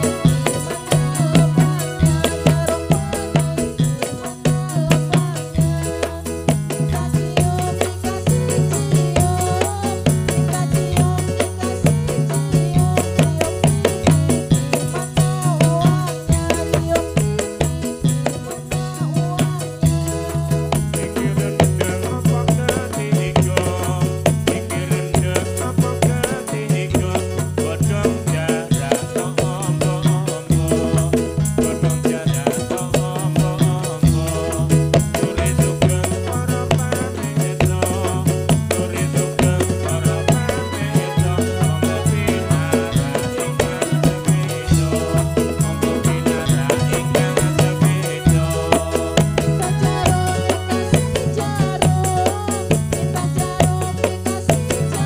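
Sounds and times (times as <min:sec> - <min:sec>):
repeating bass line: 0:00.0 - 0:52.2
drums playing a steady beat: 0:00.0 - 0:55.0
keyboard: 0:00.0 - 0:55.0.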